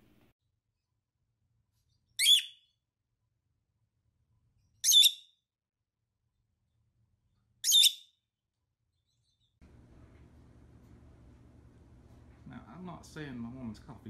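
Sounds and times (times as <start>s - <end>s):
parrot chirping: 2.2s - 2.6s, 4.8s - 5.4s, 7.6s - 8.1s.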